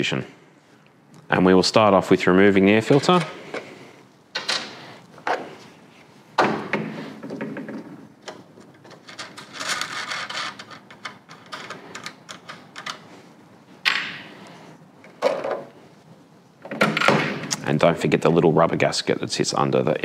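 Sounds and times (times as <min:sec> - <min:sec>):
rubbing and scraping: 0:08.8 - 0:12.1.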